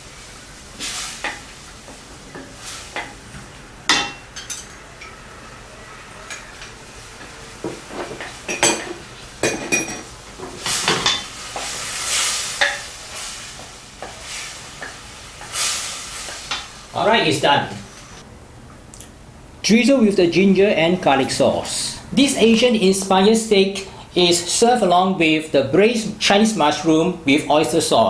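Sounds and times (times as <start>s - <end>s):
sauce sizzling: 0.0s - 18.2s.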